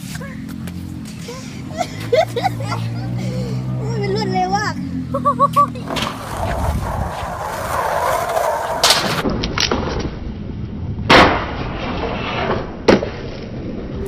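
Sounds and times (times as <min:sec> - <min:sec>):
skateboard wheels rolling on concrete: 0:00.0 - 0:14.0
skateboard clacks: 0:05.6 - 0:10.1
skateboard grinding metal rail: 0:05.8 - 0:09.3.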